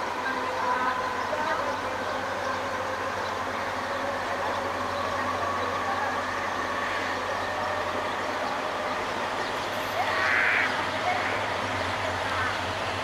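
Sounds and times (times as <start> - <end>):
locomotive engine hum: 0.0 - 13.0
train rolling on rails: 0.0 - 13.0.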